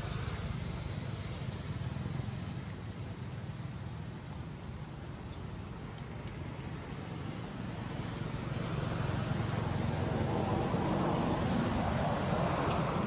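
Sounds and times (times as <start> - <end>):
vehicle approaching: 7.2 - 13.0.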